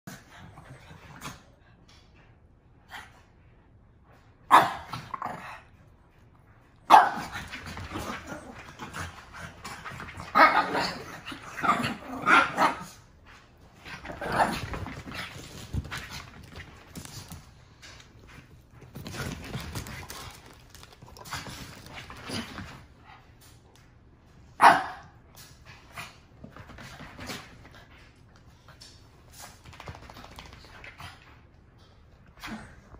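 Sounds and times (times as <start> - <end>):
small dogs barking: 6.9 - 7.3, 24.6 - 25.1.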